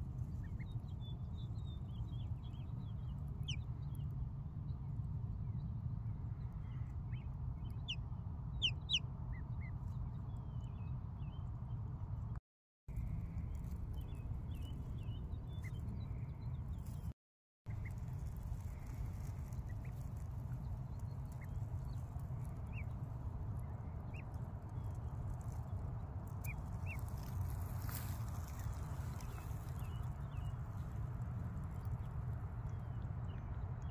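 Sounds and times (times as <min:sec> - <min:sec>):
wind rumble on microphone: 0:00.0 - 0:17.1, 0:17.7 - 0:33.9
ducklings peeping: 0:17.8 - 0:20.2, 0:21.0 - 0:21.8.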